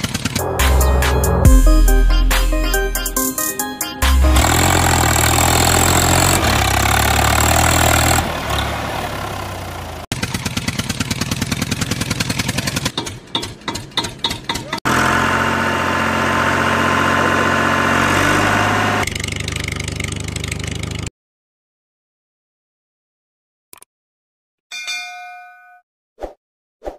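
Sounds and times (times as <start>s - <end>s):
engine rattling chug and sputters: 0.0s - 1.6s, 4.0s - 21.1s
tractor engine running: 0.0s - 21.1s.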